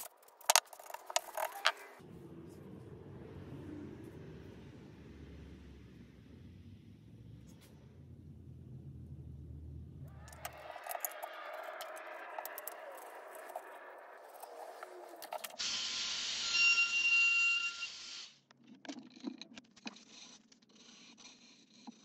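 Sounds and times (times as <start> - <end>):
clamps scraping and clicking: 10.2 - 15.6.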